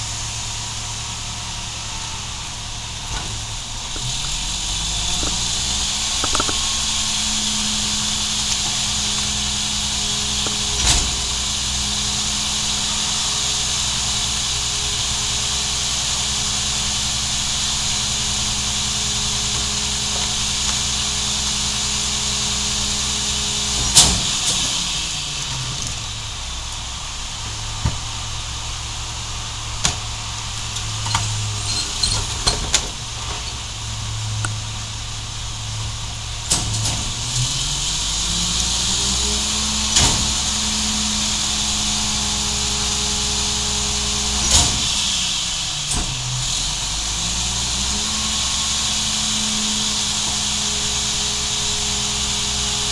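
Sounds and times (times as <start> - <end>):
hydraulic whine and hiss: 0.0 - 52.9
truck engine revving: 0.0 - 52.9
loud mechanical clunk: 3.0 - 11.7, 23.8 - 24.8, 36.5 - 37.5, 39.4 - 40.6, 44.2 - 45.2, 45.9 - 46.4
cart knocking and rattling: 3.1 - 7.3.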